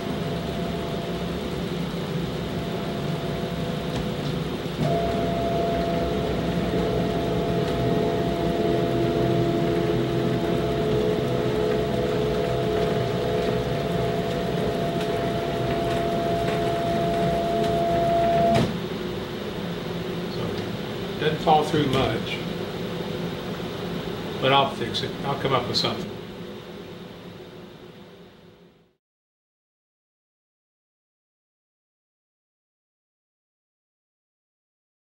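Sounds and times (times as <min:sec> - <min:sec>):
steady background hum: 0:00.0 - 0:29.0
stepper motors whining: 0:02.2 - 0:18.9.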